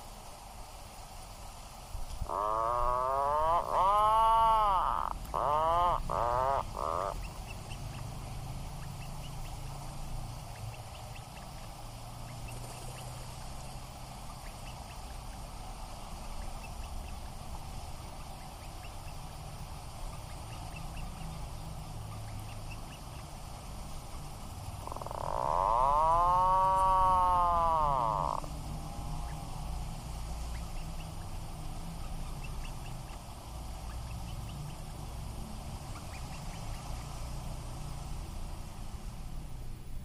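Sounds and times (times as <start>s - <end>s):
puffin calling: 2.2s - 7.3s, 24.8s - 29.4s.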